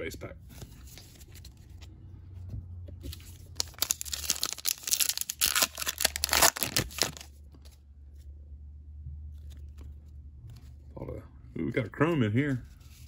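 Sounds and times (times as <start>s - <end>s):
wrapper crinkling and tearing: 3.6s - 7.3s.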